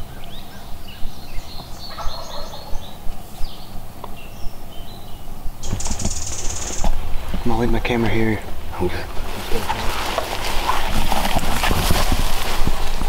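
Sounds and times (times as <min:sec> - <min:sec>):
songbirds chirping: 0:00.0 - 0:11.2
turkey gobbling: 0:01.9 - 0:02.9.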